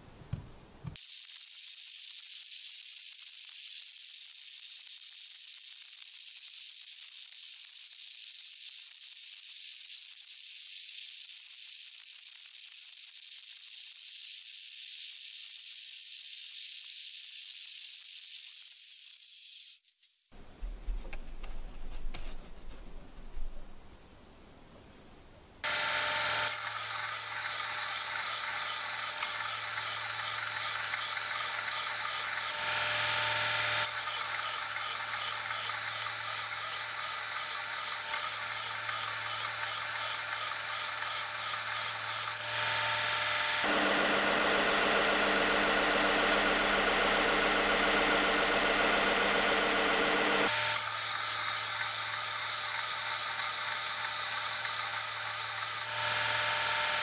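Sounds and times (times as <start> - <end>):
metal grinding on sanding belt: 25.6 - 56.5
belt sander motor hum: 25.6 - 57.0.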